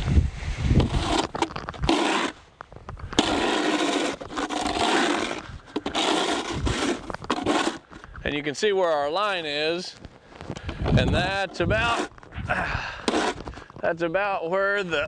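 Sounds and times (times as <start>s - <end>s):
snow shovel scraping asphalt: 0.0s - 8.4s, 10.7s - 14.0s.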